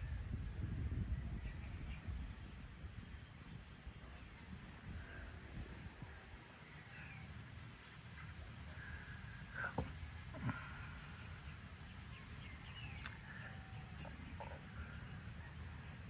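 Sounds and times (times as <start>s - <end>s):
birds chirping: 6.0s - 16.0s.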